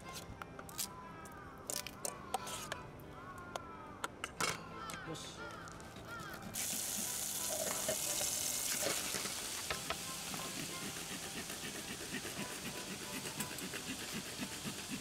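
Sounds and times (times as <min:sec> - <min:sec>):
minced meat sizzling: 0:06.6 - 0:14.8.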